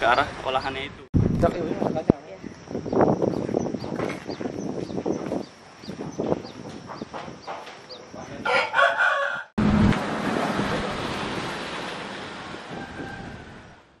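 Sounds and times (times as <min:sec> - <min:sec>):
rooster crowing: 0:08.4 - 0:09.5, 0:12.7 - 0:13.8.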